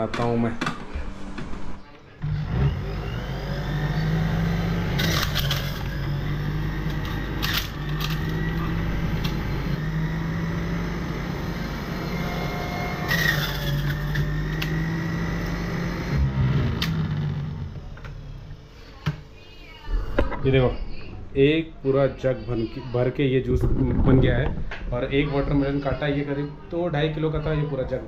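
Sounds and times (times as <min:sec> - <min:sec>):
juicer motor humming: 0:02.2 - 0:19.2.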